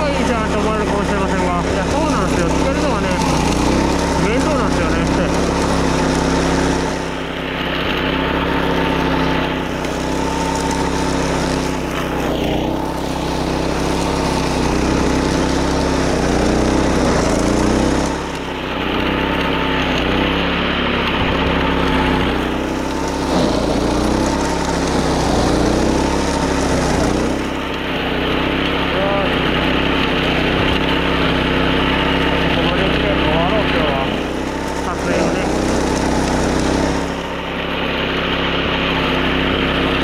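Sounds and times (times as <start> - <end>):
mower cutting grass: 0.0 - 40.0
small petrol engine running: 0.0 - 40.0.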